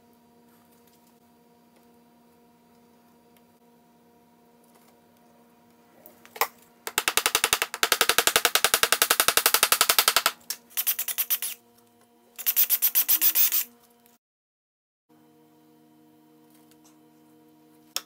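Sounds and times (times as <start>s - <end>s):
rapid mechanical clicking: 6.9s - 10.4s.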